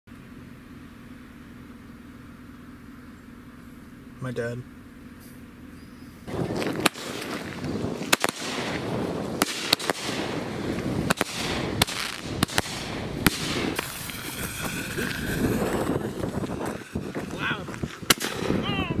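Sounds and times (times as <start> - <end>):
firework bangs: 6.3 - 19.0
fireworks crackling: 6.3 - 19.0.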